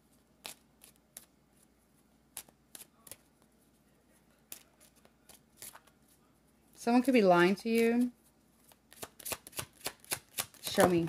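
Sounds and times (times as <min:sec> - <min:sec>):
cards clicking and snapping: 0:00.4 - 0:01.3, 0:02.3 - 0:03.3, 0:08.7 - 0:11.0.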